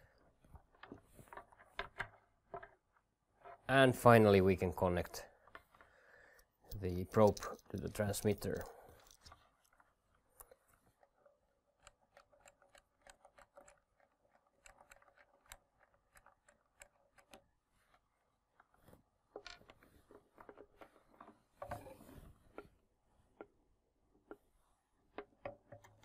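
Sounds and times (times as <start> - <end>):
small clicks: 7.2 - 18.8.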